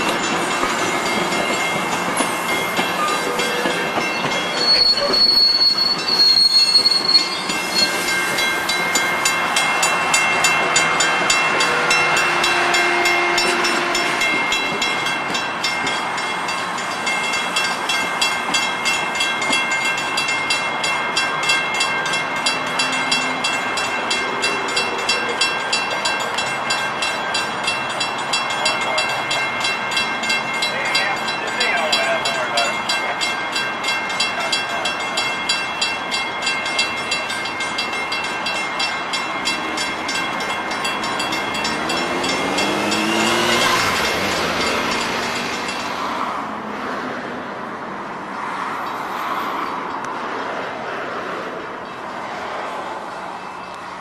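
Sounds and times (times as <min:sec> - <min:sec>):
high wheel squeal: 0:00.0 - 0:16.2, 0:21.4 - 0:46.4
crossing bell ringing: 0:00.0 - 0:46.6, 0:48.3 - 0:50.2, 0:51.8 - 0:54.0
train wheels on rails: 0:00.0 - 0:54.0.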